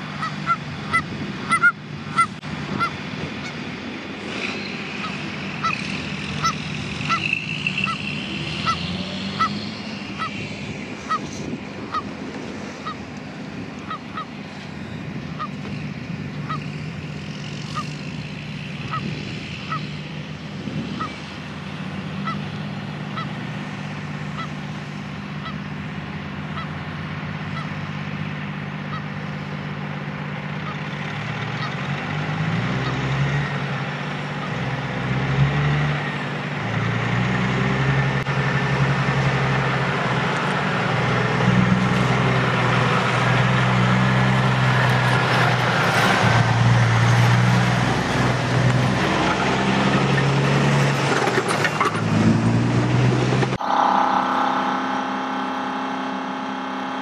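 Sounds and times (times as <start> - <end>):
geese honking: 0.0 - 3.7, 4.4 - 15.7, 16.3 - 20.2, 20.9 - 29.7, 30.5 - 31.9, 32.6 - 34.8
heavy diesel engine: 0.0 - 57.0.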